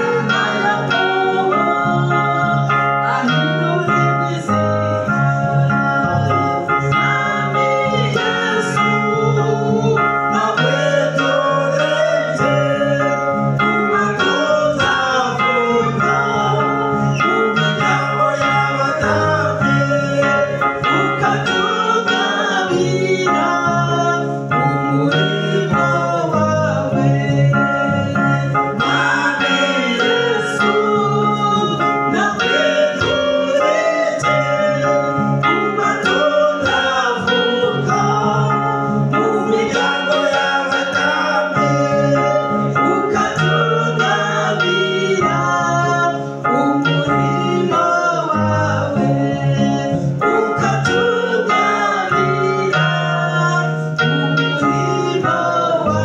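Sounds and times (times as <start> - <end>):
held chords: 0.0 - 56.0
man singing: 0.0 - 56.0.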